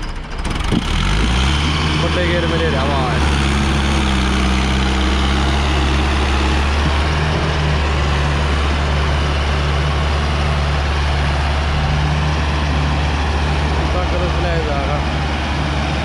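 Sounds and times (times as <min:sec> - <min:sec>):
tractor diesel engine under load: 0:00.0 - 0:16.0.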